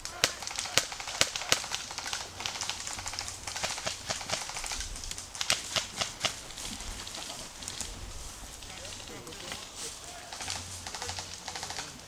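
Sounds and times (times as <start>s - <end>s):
airsoft guns firing: 0.0s - 6.5s, 9.4s - 12.0s.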